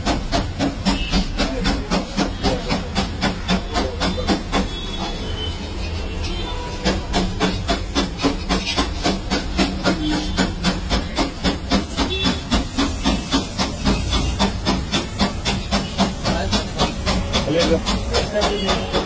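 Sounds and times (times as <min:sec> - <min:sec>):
hot griddle hissing: 0:04.6 - 0:19.0.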